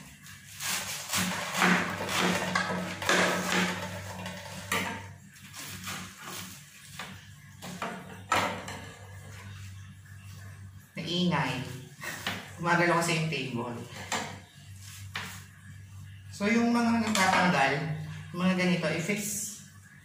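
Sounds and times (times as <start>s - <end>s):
cabbage leaves crunching and tearing: 0.0s - 3.0s
knife slicing cabbage: 0.0s - 4.7s, 5.5s - 7.2s.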